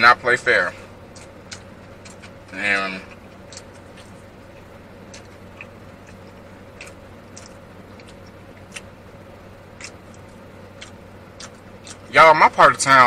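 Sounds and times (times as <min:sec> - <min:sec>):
low car cabin hum: 0:00.0 - 0:13.0
mouth chewing food: 0:01.1 - 0:09.0, 0:09.6 - 0:12.1.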